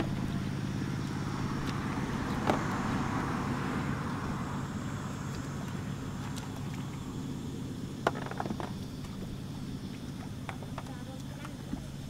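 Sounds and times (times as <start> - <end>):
vehicle engine passing by: 0.0 - 11.2.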